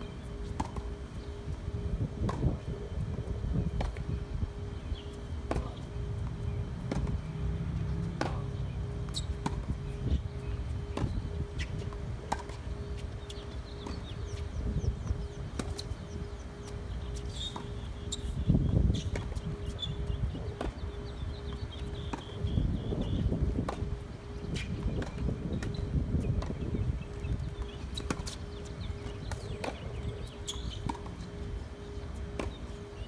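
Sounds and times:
tennis ball bouncing: 0.3 - 1.3, 2.2 - 2.7, 3.7 - 22.5, 23.1 - 26.7, 27.4 - 33.0
rackets striking tennis ball: 5.5 - 5.8, 6.9 - 7.2, 7.8 - 22.5.

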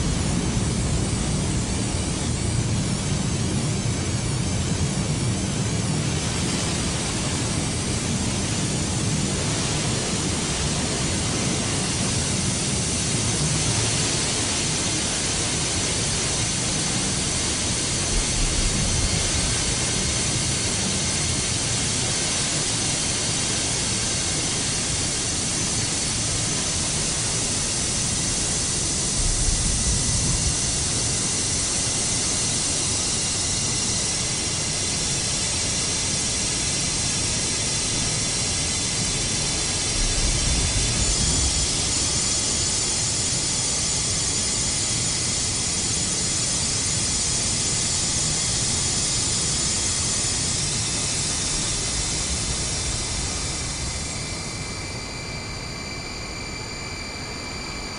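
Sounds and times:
steam venting hiss: 0.0 - 57.9
high-pitched whines: 36.3 - 57.9.

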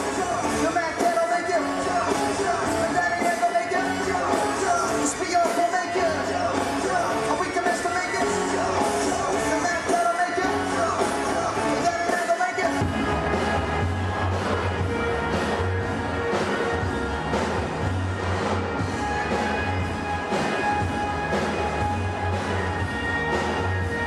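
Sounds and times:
person singing: 0.0 - 15.7
drums: 0.0 - 24.0
electric guitar: 0.0 - 24.0
keyboard: 0.0 - 24.0.

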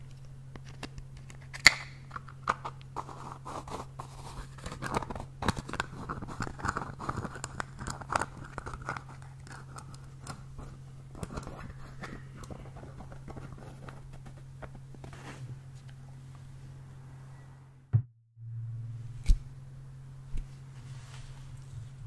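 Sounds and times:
fingers scratching plastic container: 2.6 - 14.8.

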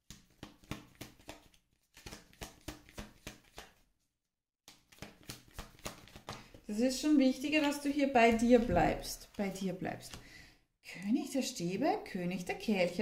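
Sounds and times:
cards shuffling: 0.1 - 3.8, 4.7 - 6.6.

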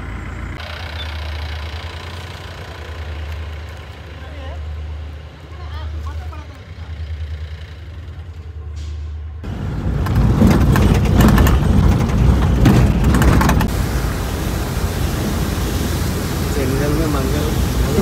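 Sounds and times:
engine humming low: 0.0 - 18.0
vehicle driving on rough track: 0.0 - 18.0
rattling knocks: 10.0 - 13.7.

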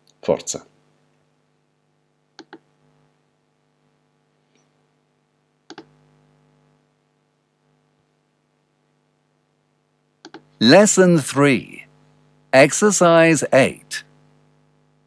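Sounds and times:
faint electrical hum: 0.0 - 15.0
computer mouse clicking: 2.4 - 2.6, 5.7 - 5.9, 10.2 - 10.5.

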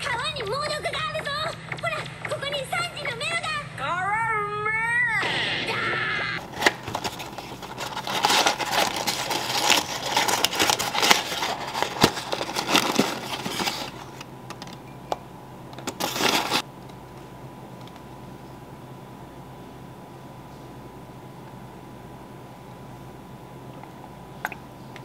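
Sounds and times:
cardboard and packaging crinkling: 6.4 - 14.2, 15.8 - 16.6.

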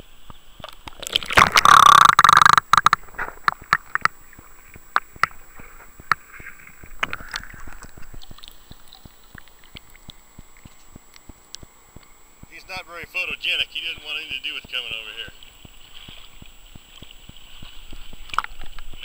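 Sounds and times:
muffled underwater crackle: 0.0 - 19.0
water sloshing and gurgling: 0.2 - 12.6, 14.6 - 19.0
sharp clicks: 0.3 - 4.2.

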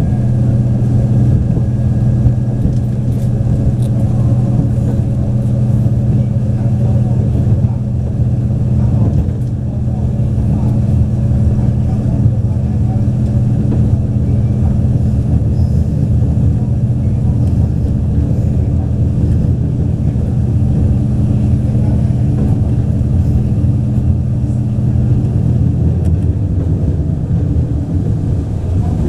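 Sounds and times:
diesel train engine hum: 0.0 - 29.0
train running rumble: 0.0 - 29.0.

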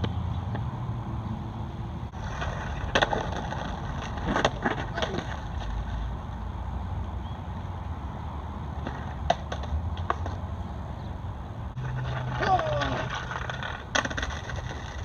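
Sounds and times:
skateboard wheels rolling on concrete: 0.0 - 15.0
skateboard clacks: 2.2 - 6.3, 8.8 - 10.5, 11.8 - 15.0.

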